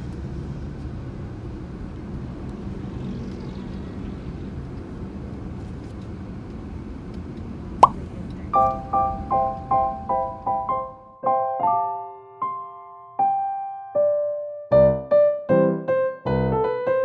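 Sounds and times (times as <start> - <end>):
car engine and road noise: 0.0 - 10.6.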